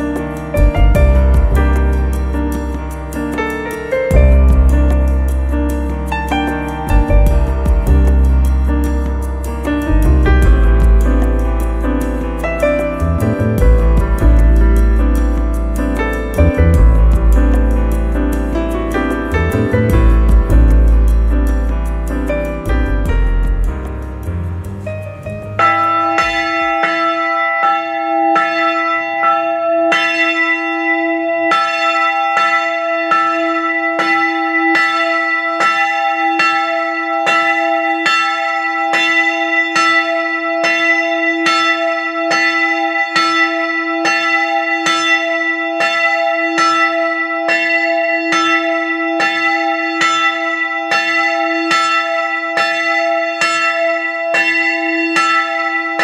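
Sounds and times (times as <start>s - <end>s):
church bell ringing: 25.2s - 56.0s.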